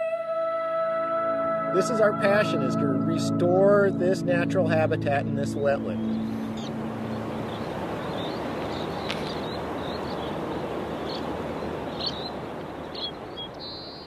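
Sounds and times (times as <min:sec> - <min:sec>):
small birds chirping: 0:05.7 - 0:14.0
steady rushing noise: 0:06.0 - 0:13.4.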